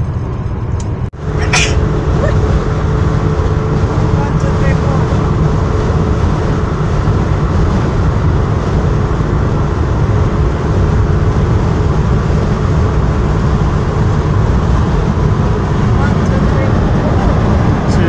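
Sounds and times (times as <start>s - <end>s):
engine and tyre rumble: 0.0s - 18.0s.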